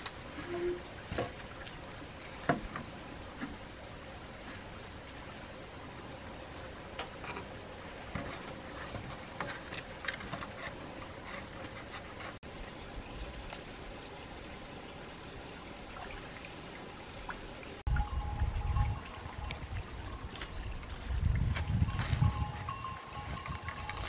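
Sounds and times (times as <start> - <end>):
high-pitched insect drone: 21.7 - 24.0.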